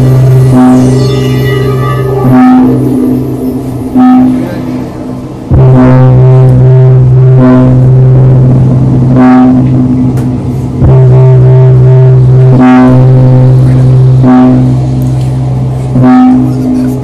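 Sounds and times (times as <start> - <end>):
bright synth note: 0.0 - 17.0
deep bass drone: 0.0 - 17.0.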